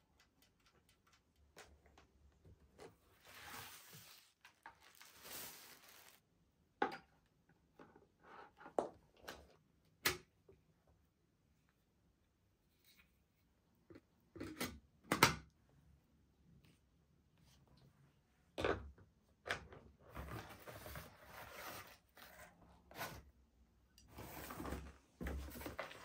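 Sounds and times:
packaging rustle and scrape: 3.1s - 6.2s.

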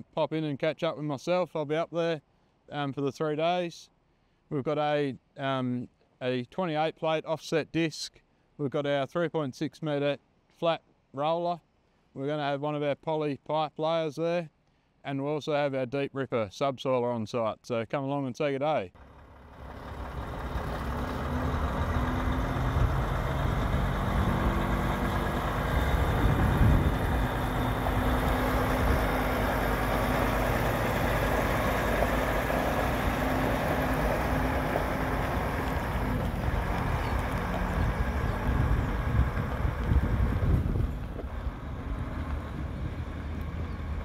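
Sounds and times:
truck diesel engine rumble: 19.0s - 44.0s.

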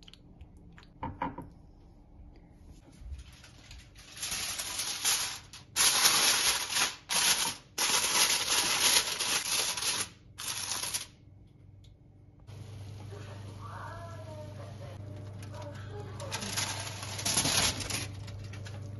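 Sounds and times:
aluminium foil crinkling: 2.9s - 11.2s, 15.2s - 18.9s.

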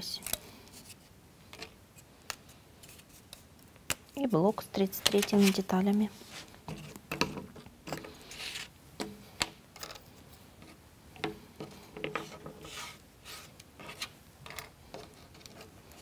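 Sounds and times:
brushing scrapes: 5.2s - 6.9s, 8.2s - 8.7s, 12.0s - 14.2s.

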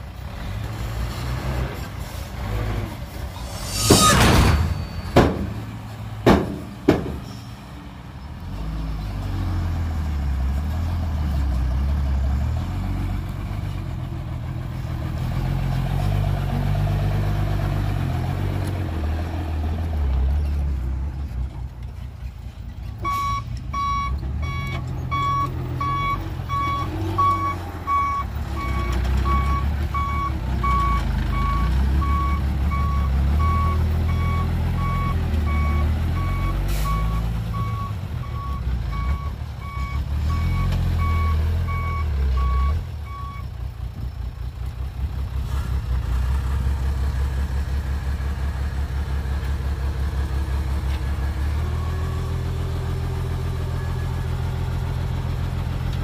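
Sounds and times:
diesel truck engines running: 0.0s - 56.0s
sharp bangs: 3.2s - 7.4s
truck reversing alarm beeping: 23.0s - 43.6s.

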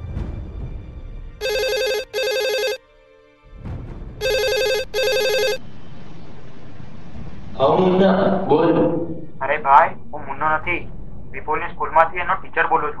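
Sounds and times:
phone double ring: 1.4s - 2.8s, 4.2s - 5.6s.

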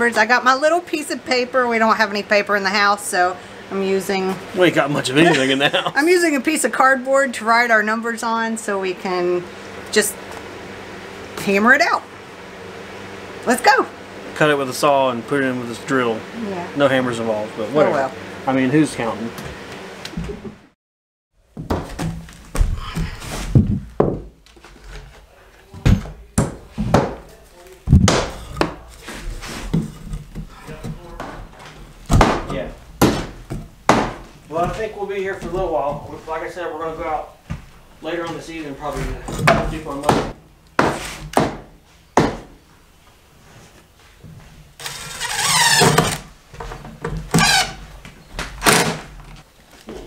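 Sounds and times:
wooden knocks and thunks: 21.5s - 24.4s, 25.8s - 27.3s, 27.9s - 28.9s, 29.7s - 36.1s
sharp knocks on wood: 23.6s - 24.4s, 26.4s - 27.2s, 27.9s - 28.8s, 32.1s - 34.8s, 39.5s - 42.6s
cordless drill driving screw: 44.8s - 46.2s.

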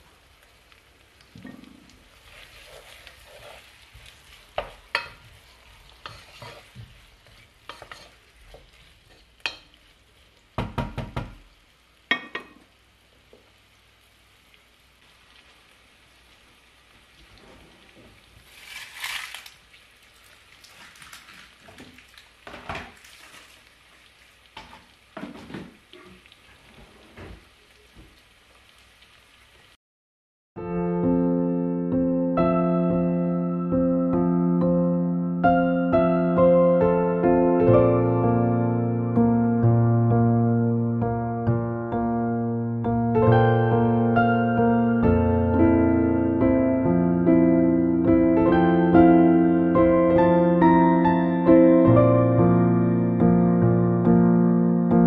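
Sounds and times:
onions frying in a pot: 0.0s - 29.8s
wooden spoon stirring: 1.3s - 9.8s, 22.8s - 23.8s
cookware knocking and clattering: 12.1s - 12.6s.

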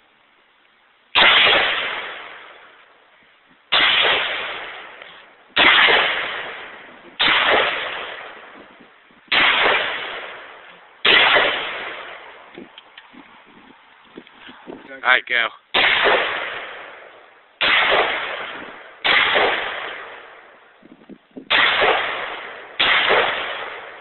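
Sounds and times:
rifle shots: 1.2s - 2.8s, 3.7s - 8.7s, 9.3s - 12.5s, 15.7s - 20.6s, 21.5s - 24.0s.

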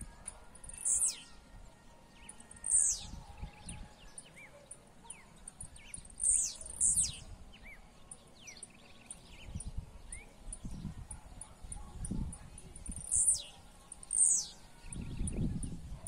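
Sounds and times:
faint bird chirps: 0.0s - 1.4s, 2.1s - 16.0s
bird singing high falling song: 0.0s - 16.0s.

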